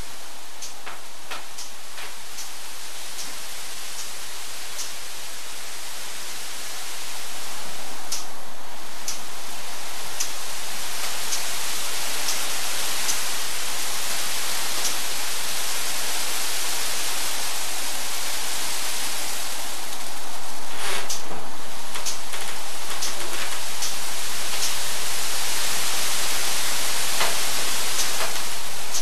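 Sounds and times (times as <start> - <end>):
fans hissing into plastic bags: 0.0 - 29.0
faint ticks: 0.6 - 3.4, 4.0 - 5.0, 8.1 - 8.3, 9.0 - 9.3, 21.9 - 24.8.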